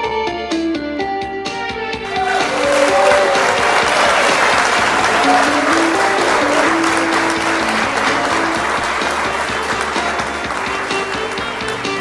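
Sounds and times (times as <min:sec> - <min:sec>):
instrumental music over pa: 0:00.0 - 0:12.0
audience applauding: 0:02.0 - 0:12.0.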